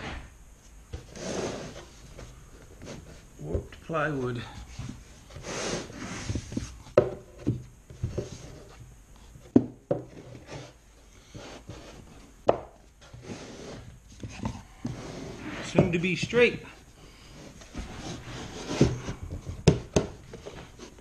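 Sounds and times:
wooden boards scraping on plywood: 0:00.9 - 0:03.6, 0:04.8 - 0:08.8, 0:09.9 - 0:16.0, 0:17.1 - 0:21.0
sharp wooden knocks: 0:18.8 - 0:20.2.

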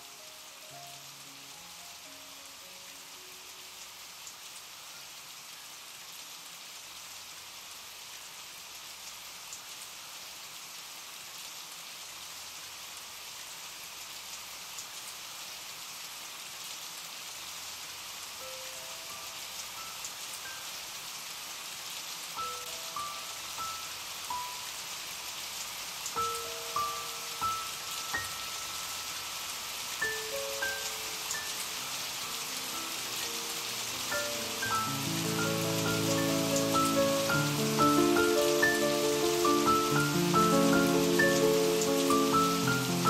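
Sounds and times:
soft background music: 0:00.0 - 0:05.2, 0:18.4 - 0:21.2, 0:22.4 - 0:25.0, 0:26.1 - 0:43.0
steady rain falling: 0:00.0 - 0:43.0.

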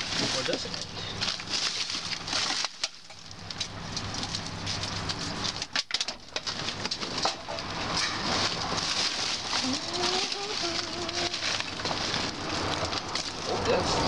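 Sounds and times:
bags and trash rustling: 0:00.0 - 0:14.0.

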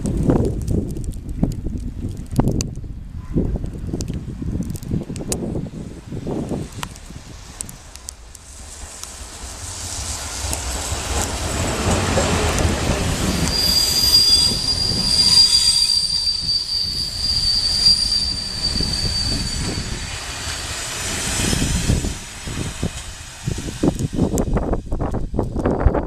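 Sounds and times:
train wheels rumbling on rails: 0:00.0 - 0:26.0
high steady squeal: 0:08.0 - 0:26.0.

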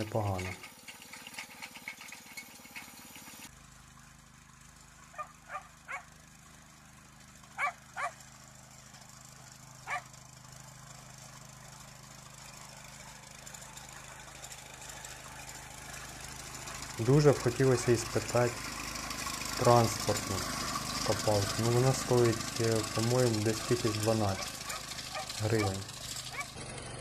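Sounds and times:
faint small engine hum: 0:00.0 - 0:27.0
dog barking: 0:05.2 - 0:06.1, 0:07.6 - 0:08.2, 0:09.9 - 0:10.1, 0:24.4 - 0:26.5.

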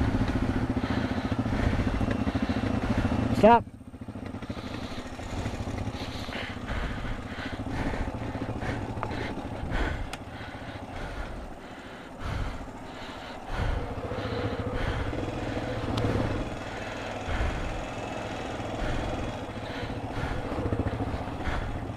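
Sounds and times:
atv engine running: 0:00.0 - 0:21.9.

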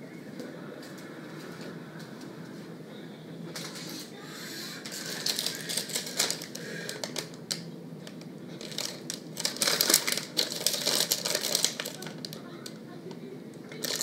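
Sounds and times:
plastic wrapper crinkling: 0:04.9 - 0:12.8, 0:13.7 - 0:14.0.

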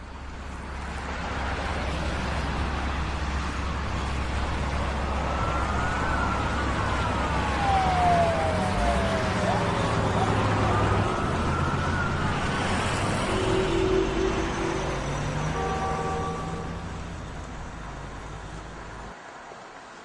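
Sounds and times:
siren wailing: 0:04.5 - 0:17.2.

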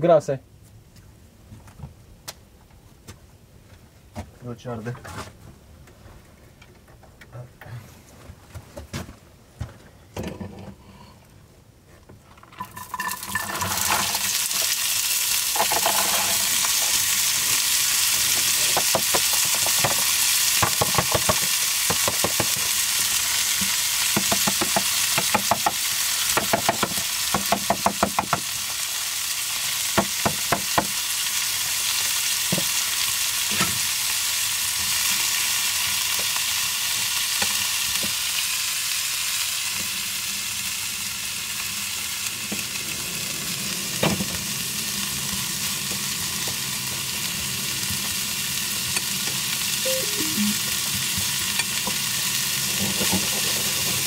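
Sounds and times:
vegetables sizzling in oil: 0:12.6 - 0:54.0
fork scraping a pan: 0:15.6 - 0:17.0.

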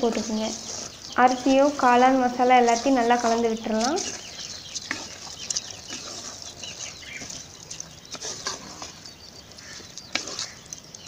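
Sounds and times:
birds calling: 0:00.0 - 0:11.0
ladle scraping clay pot: 0:00.0 - 0:11.0.

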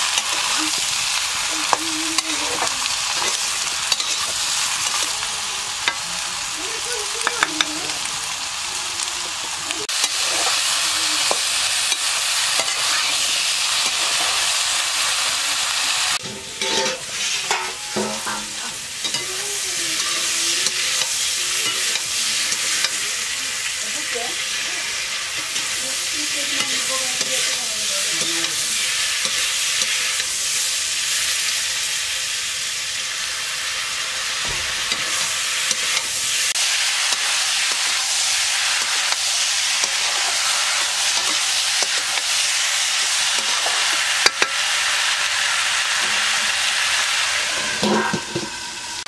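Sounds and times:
vegetables sizzling in oil: 0:00.0 - 0:49.0
metal ladle scraping a wok: 0:01.6 - 0:05.1, 0:16.2 - 0:19.4, 0:34.4 - 0:49.0.

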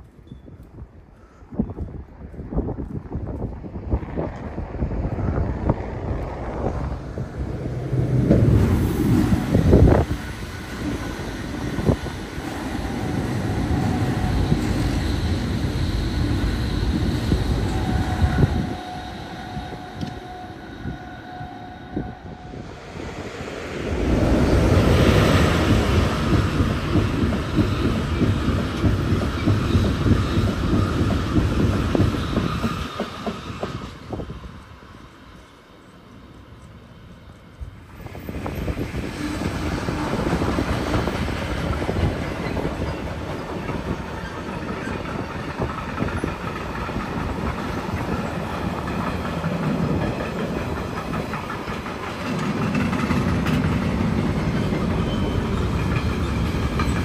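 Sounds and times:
train wheels clattering over rails: 0:24.6 - 0:34.3, 0:38.2 - 0:57.0.

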